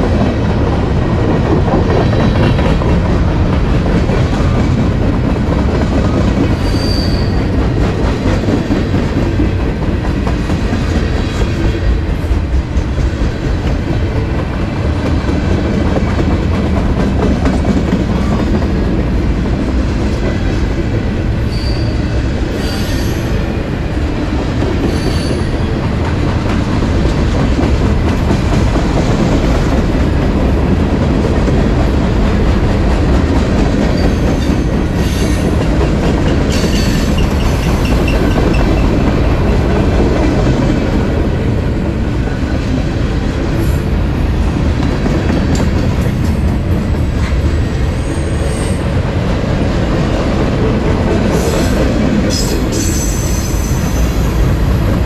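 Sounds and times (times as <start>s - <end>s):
train wheels rumbling and clacking: 0.0s - 55.0s
high-pitched wheel squeals: 6.6s - 7.4s, 21.5s - 23.3s.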